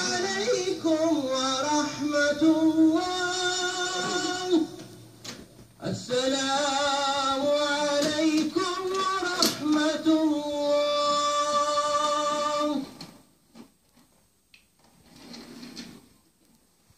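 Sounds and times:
person singing long notes: 0.0s - 5.0s, 5.8s - 13.0s.

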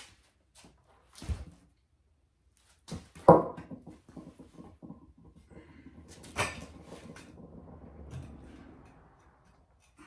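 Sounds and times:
small knocks and rattles: 2.9s - 10.0s.

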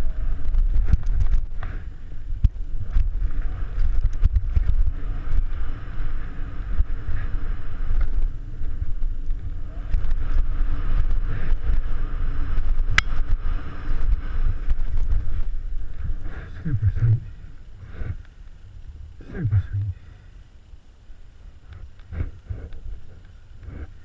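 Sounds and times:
bike clicks and rattles: 0.0s - 16.1s
bike tyres rolling over dirt: 0.0s - 19.2s.

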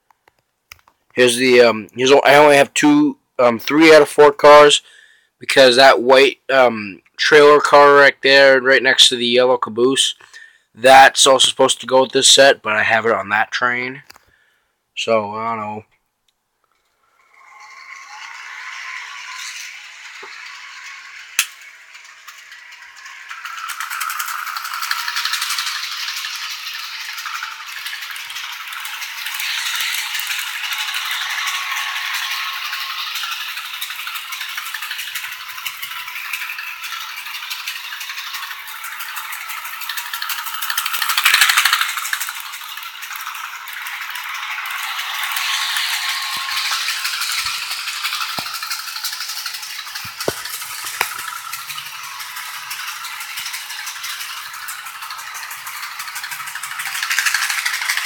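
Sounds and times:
model train clattering: 10.0s - 13.2s, 16.7s - 58.0s.

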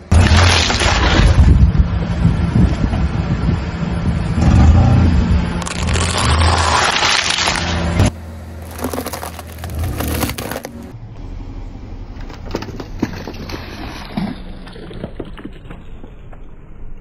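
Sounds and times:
tyre crunching dry pasta: 5.6s - 7.6s, 8.6s - 10.9s.

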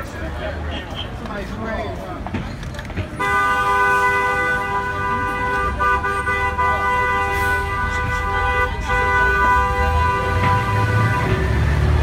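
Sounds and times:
traffic rumble: 0.0s - 12.0s
two-tone car horn: 3.2s - 11.8s.

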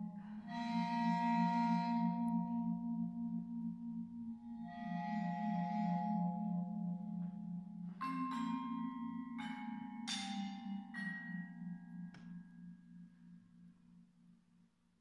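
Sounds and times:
low pulsing sustained tone: 0.0s - 13.9s
mallet percussion notes: 5.4s - 13.0s.

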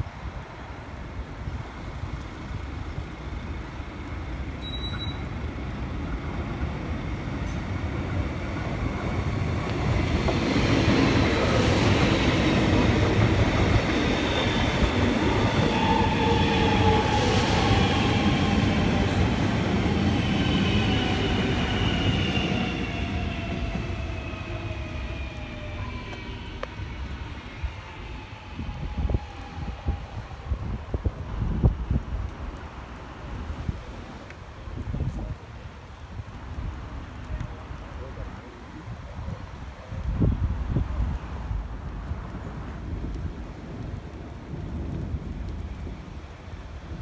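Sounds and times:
electric train passing: 0.5s - 31.7s
train wheels rumbling on rails: 1.2s - 38.2s.

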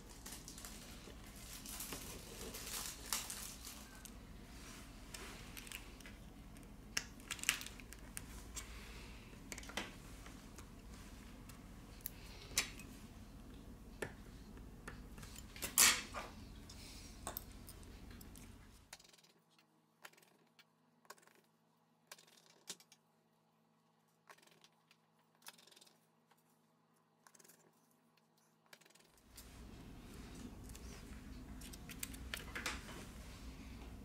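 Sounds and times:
low rumble and hiss: 0.0s - 18.9s, 29.3s - 34.0s.

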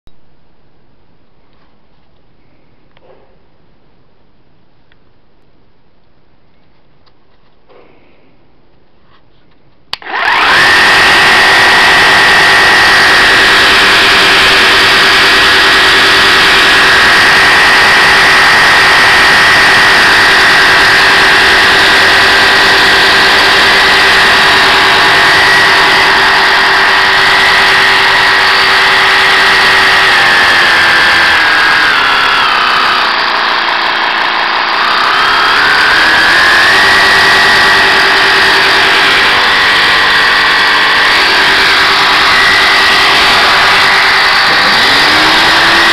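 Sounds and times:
jigsaw motor whine: 10.0s - 45.9s.

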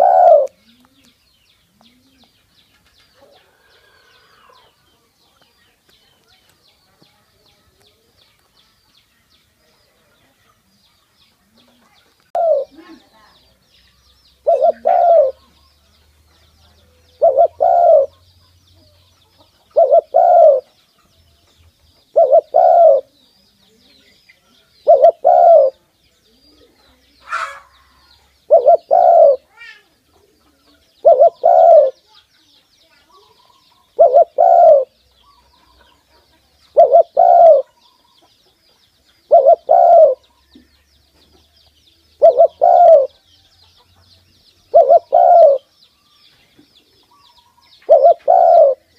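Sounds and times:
dove cooing: 0.0s - 1.1s, 12.3s - 13.0s, 14.4s - 15.5s, 16.9s - 18.3s, 19.7s - 20.7s, 22.1s - 23.2s, 24.8s - 25.8s, 26.4s - 32.0s, 33.2s - 35.8s, 36.7s - 37.8s, 39.3s - 40.2s, 42.2s - 43.2s, 44.7s - 45.7s, 47.1s - 48.9s
small birds chirping: 0.0s - 48.9s.

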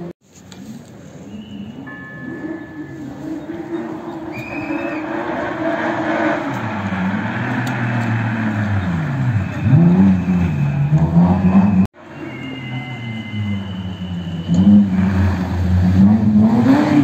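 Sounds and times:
rally car engine revving: 2.3s - 11.9s, 13.3s - 17.0s.

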